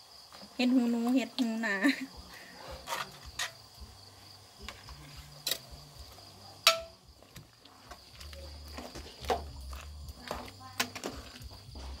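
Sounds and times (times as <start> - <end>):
crickets chirring: 0.0 - 12.0
metal ladle clinking against pot: 6.7 - 7.0.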